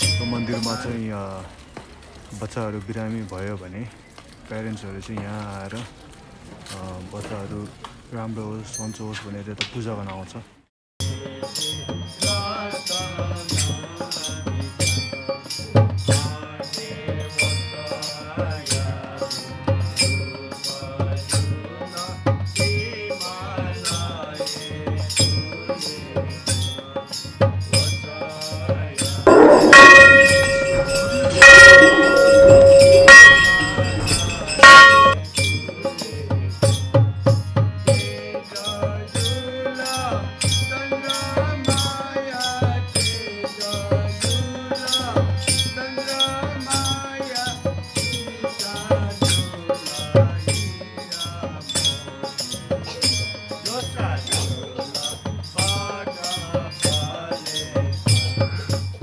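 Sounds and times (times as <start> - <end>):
drum and shaker beat: 29.1 - 35.6
ringing bell strikes: 29.3 - 35.7.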